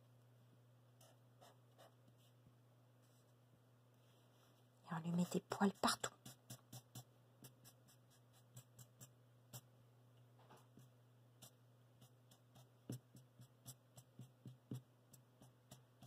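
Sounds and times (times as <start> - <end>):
marker ticking on paper: 5.7 - 9.7, 11.4 - 16.0.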